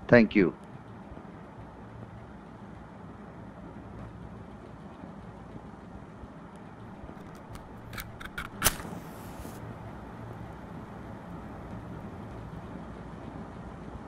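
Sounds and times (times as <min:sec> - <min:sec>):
steady low hum: 0:00.0 - 0:14.0
match scraping on matchbox: 0:07.2 - 0:12.5
match strike and flare hiss: 0:07.2 - 0:12.6.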